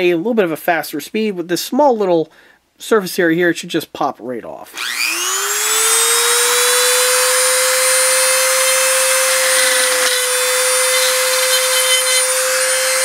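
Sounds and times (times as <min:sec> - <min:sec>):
rotary tool whining: 0:04.7 - 0:13.0.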